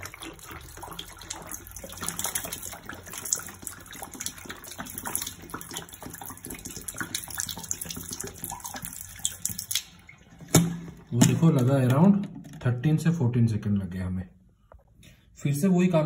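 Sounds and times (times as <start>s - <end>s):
bottle gulping air bubbles: 0.0s - 11.4s
water pouring into a sink: 0.0s - 12.1s.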